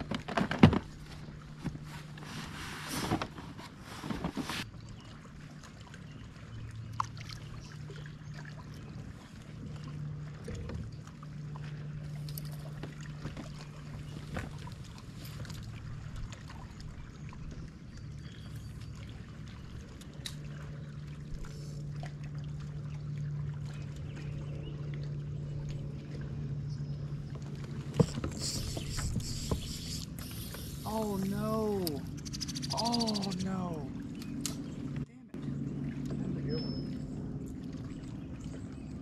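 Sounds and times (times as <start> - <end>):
water noise: 0.0 - 39.0
electric motor humming: 28.1 - 33.7.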